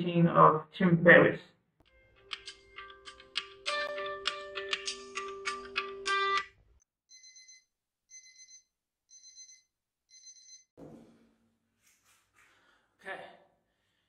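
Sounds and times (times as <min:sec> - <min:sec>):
phone alarm chiming melody: 0:07.1 - 0:10.7.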